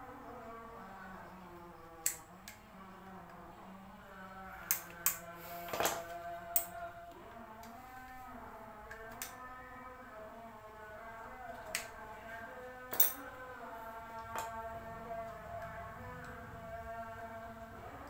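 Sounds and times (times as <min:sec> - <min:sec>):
background music: 0:04.7 - 0:18.0
metal tool clinks: 0:12.9 - 0:13.2.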